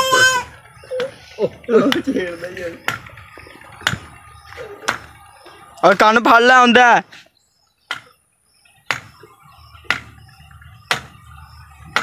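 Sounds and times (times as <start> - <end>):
sharp knocks: 2.8 - 3.2, 3.8 - 4.2, 4.8 - 5.1, 8.8 - 9.2, 9.8 - 10.2, 10.9 - 11.2.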